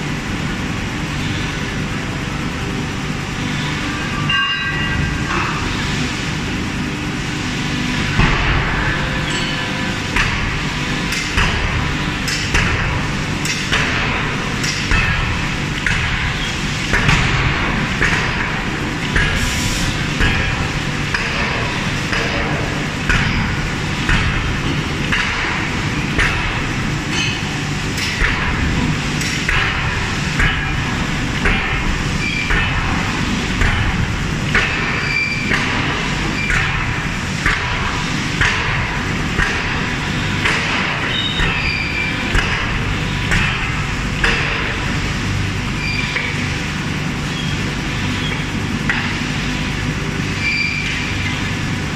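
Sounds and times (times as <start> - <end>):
shop machinery din: 0.0 - 51.9
forging hammer striking steel: 4.3 - 5.4, 40.4 - 44.8.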